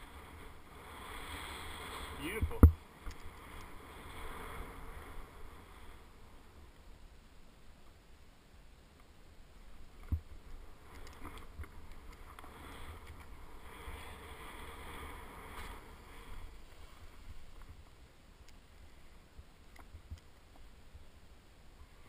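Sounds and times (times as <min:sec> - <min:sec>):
skis hissing through powder snow: 0:00.0 - 0:02.4, 0:03.3 - 0:06.6, 0:12.2 - 0:17.6.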